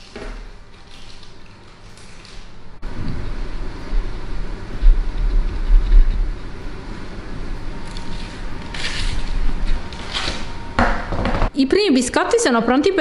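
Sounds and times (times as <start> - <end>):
low rumble: 2.8 - 8.6
baking parchment rustling: 7.8 - 10.6.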